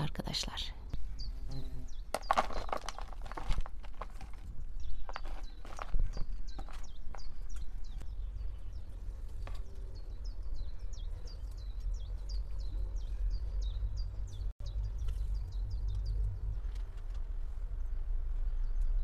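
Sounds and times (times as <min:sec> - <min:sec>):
small bird chirping: 0:00.0 - 0:03.5, 0:04.6 - 0:16.8
low steady rumble: 0:08.2 - 0:19.0.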